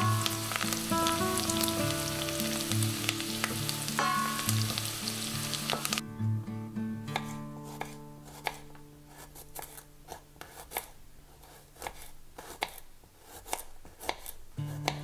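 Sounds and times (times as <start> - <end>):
knife slicing on wooden board: 7.1 - 15.0.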